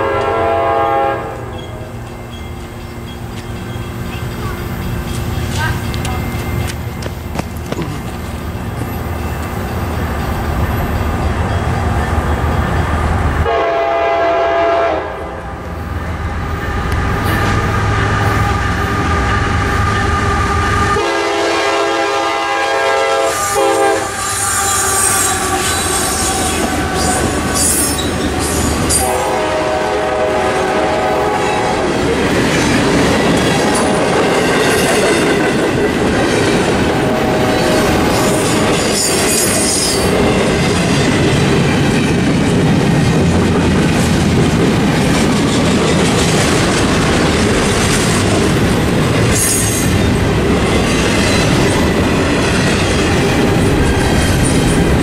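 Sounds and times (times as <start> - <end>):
train horn blasts: 0.0 - 1.9, 13.4 - 15.6, 17.0 - 28.0, 28.9 - 32.0, 36.9 - 38.8
crossing bells ringing: 1.4 - 13.4
wheel squeal: 1.5 - 4.3
freight cars clickety-clack: 1.5 - 13.0, 31.5 - 55.0.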